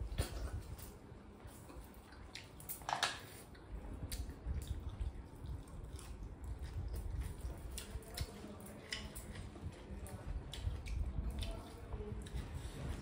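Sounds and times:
chewing clicks: 3.5s - 12.4s.

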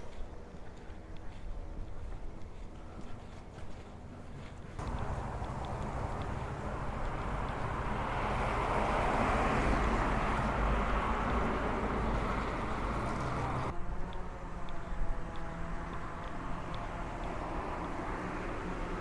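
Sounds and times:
car passing: 4.8s - 19.0s.

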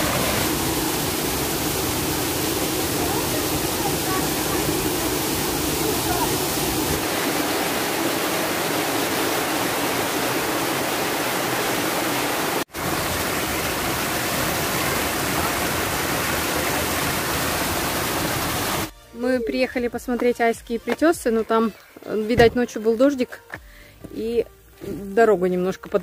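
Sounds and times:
stream rushing over rocks: 0.0s - 18.9s.

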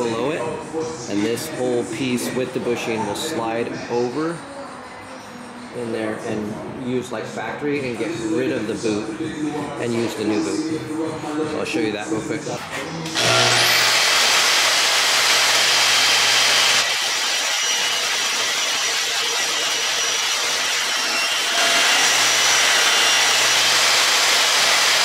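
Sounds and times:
band saw cutting metal: 13.1s - 25.0s.

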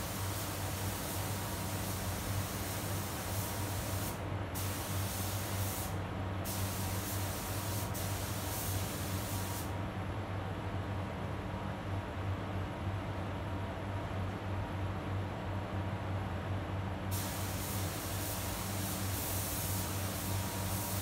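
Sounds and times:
paint spray gun hissing: 0.0s - 9.7s, 17.1s - 21.0s
spray booth fans humming: 0.0s - 9.8s, 17.1s - 21.0s.

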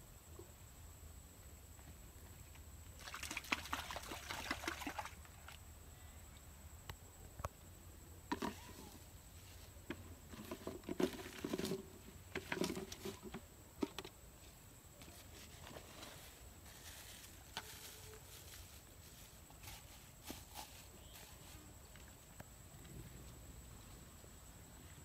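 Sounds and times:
rustling in a plastic bucket: 8.3s - 22.4s.

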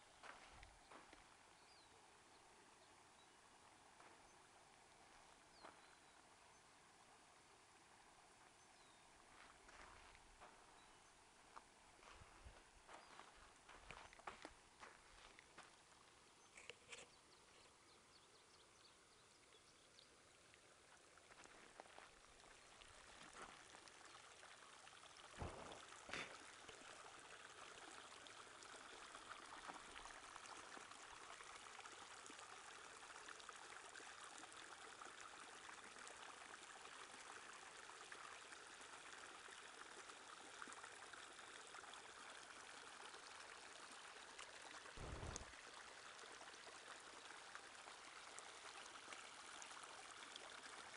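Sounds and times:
stream flowing over rocks: 0.0s - 50.9s
short low thumps: 25.4s - 26.2s.

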